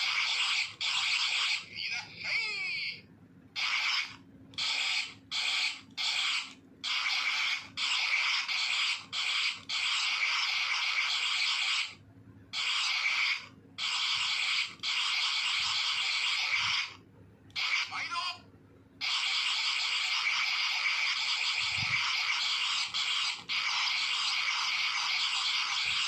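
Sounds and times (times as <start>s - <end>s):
toy electronic hissy bursts: 3.6s - 12.0s, 12.6s - 17.0s, 19.0s - 26.0s.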